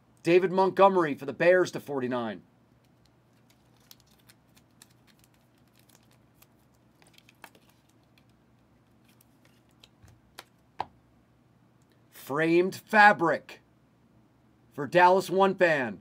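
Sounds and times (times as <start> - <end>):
cards and plastic sleeve rustling: 2.7 - 10.6.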